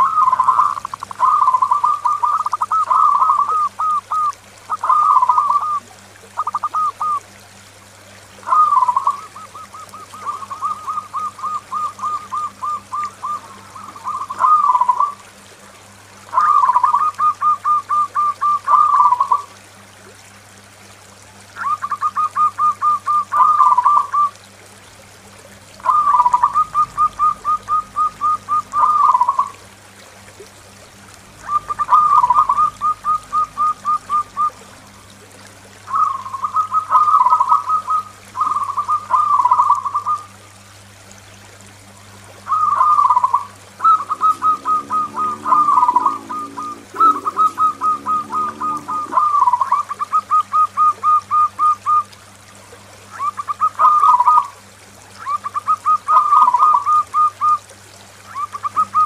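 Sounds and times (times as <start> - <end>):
dove cooing: 0.0 - 7.2, 8.4 - 15.3, 16.3 - 19.6, 21.6 - 24.4, 25.8 - 29.7, 30.8 - 35.2, 35.8 - 40.3, 42.4 - 52.1, 53.2 - 54.6, 55.2 - 57.6, 58.3 - 59.0.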